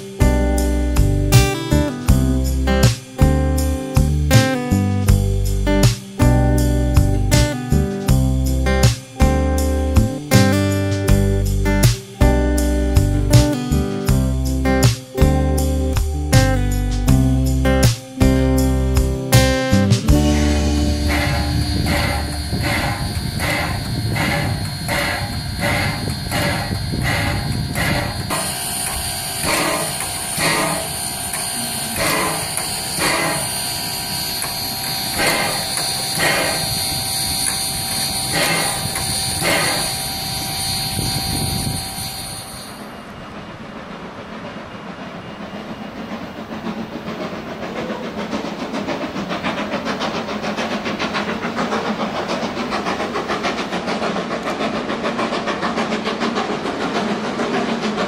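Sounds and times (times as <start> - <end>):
steam hiss: 0.0 - 15.8, 17.5 - 58.0
distant train rumbling: 0.0 - 58.0
steam air pump beating: 0.0 - 58.0
steady high ring: 11.1 - 43.1.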